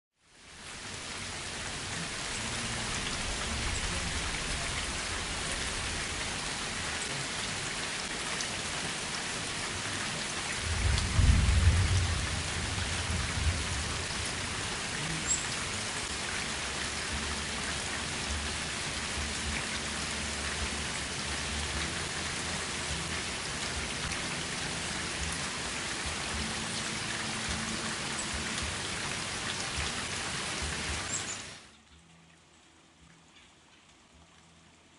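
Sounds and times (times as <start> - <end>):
rain on pavement: 0.2 - 31.7
thunder rumble: 10.6 - 15.1.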